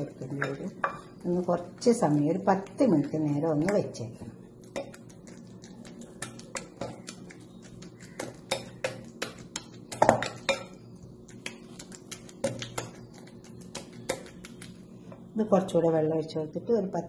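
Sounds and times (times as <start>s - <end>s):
spoon stirring batter in bowl: 4.6s - 14.8s.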